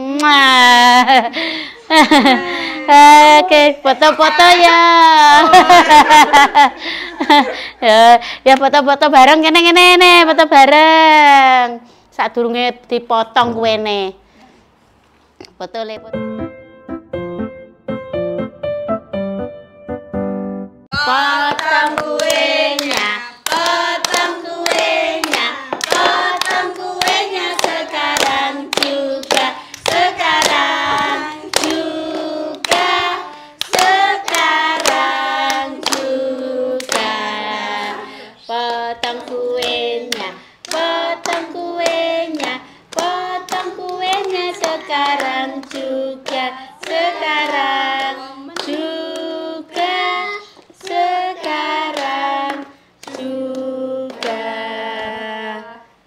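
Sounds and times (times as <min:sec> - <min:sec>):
group singing: 0:20.9 - 0:56.0
people clapping along: 0:21.0 - 0:55.3.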